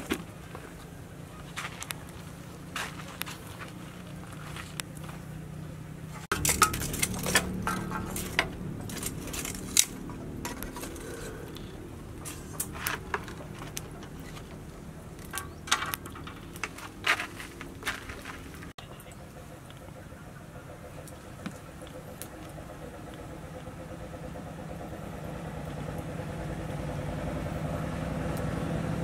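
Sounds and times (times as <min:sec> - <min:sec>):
wire grill rack clinking: 0:06.3 - 0:18.1.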